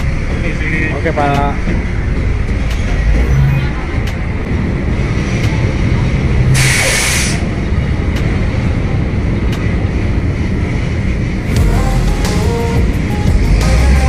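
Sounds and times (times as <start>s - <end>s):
diesel truck engine running: 0.0s - 14.0s
air brake hiss: 6.6s - 7.5s.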